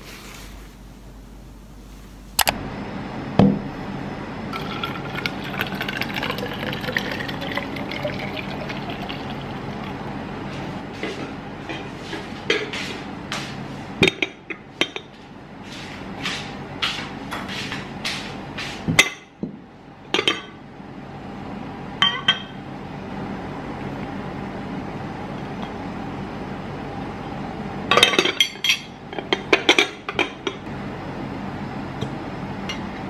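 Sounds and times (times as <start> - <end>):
tableware clinking: 22.0 - 22.5, 27.9 - 30.5.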